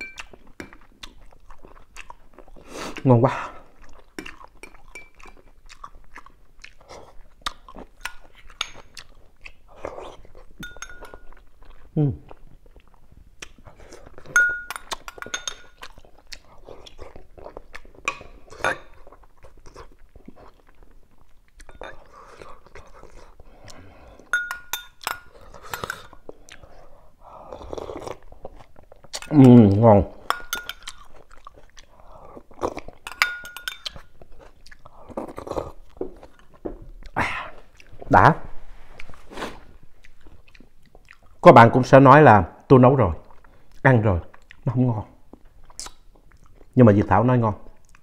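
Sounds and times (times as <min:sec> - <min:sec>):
metal spoon clinking on bowl: 0:00.0 - 0:00.7, 0:04.6 - 0:05.3, 0:08.0 - 0:08.9, 0:10.6 - 0:11.4, 0:14.3 - 0:15.9, 0:21.7 - 0:22.0, 0:24.3 - 0:25.9, 0:30.3 - 0:31.0, 0:33.0 - 0:34.0
man chewing: 0:00.0 - 0:38.1, 0:38.8 - 0:41.4, 0:43.2 - 0:46.8, 0:47.7 - 0:48.0
spoon knocking glass dish: 0:10.6 - 0:11.2, 0:14.4 - 0:15.6, 0:24.4 - 0:25.2
mouth clicks: 0:45.7 - 0:46.0.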